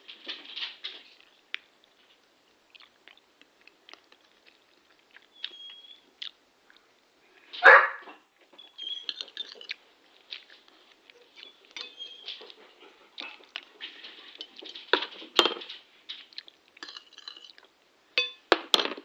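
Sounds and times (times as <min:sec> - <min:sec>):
dog barking: 0:07.6 - 0:08.2
dog whining: 0:11.2 - 0:12.6.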